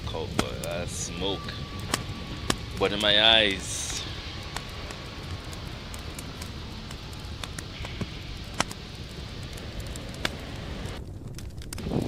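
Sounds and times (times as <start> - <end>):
wind rumble on microphone: 0.0 - 12.0
wood fire crackling: 0.0 - 12.0.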